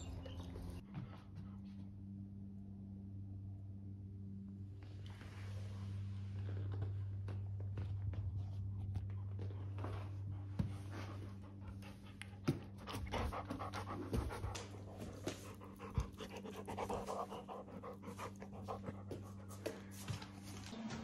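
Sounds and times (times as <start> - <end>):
dog panting rapidly: 10.6 - 19.8.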